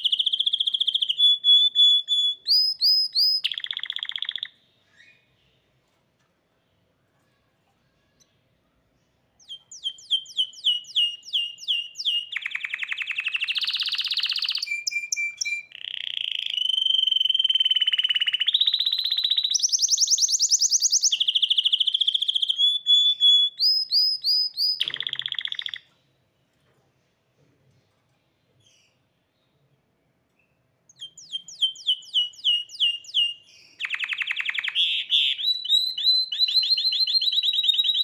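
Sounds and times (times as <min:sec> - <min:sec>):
canary singing: 0:00.0 - 0:05.6, 0:09.4 - 0:26.1, 0:30.4 - 0:38.0.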